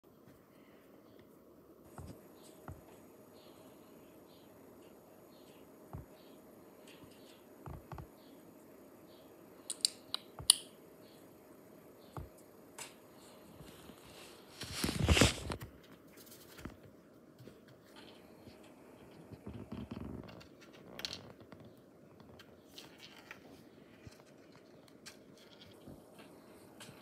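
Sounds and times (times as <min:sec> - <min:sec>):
sharp taps and clicks: 0:09.7 - 0:10.7
paper and cardboard rustling: 0:13.6 - 0:18.2.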